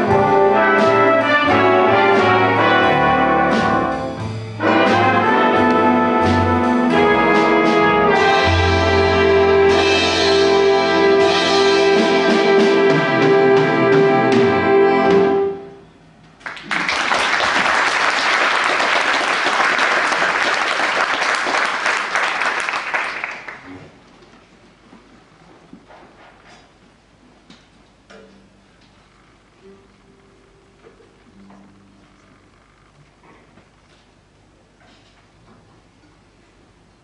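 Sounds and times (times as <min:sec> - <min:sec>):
swing big band playing: 0:00.0 - 0:15.8
audience applause: 0:16.4 - 0:23.8.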